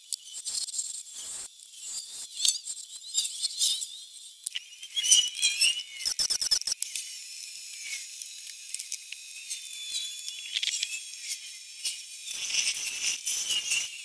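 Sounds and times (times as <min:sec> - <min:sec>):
wood lathe hiss and whistle: 0:09.4 - 0:14.0.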